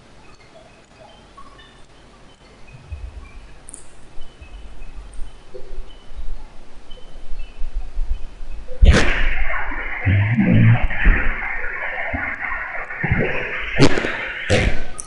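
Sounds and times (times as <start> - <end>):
faint high chirps: 0.0 - 15.0
low rumble: 2.7 - 5.8, 9.1 - 15.0.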